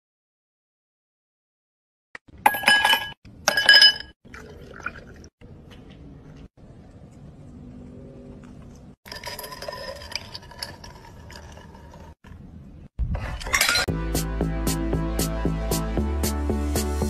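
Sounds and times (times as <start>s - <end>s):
glass or dishes clinking: 2.5s - 4.2s, 13.5s - 13.9s
music with a steady beat: 13.9s - 17.0s.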